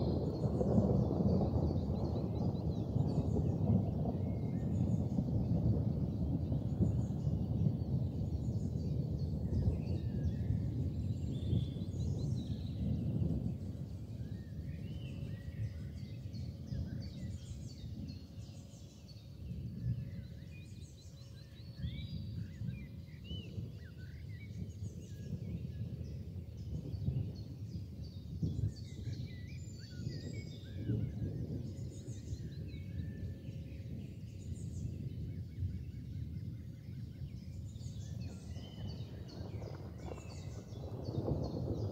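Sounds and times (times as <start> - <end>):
small birds chirping: 0.0 - 41.9.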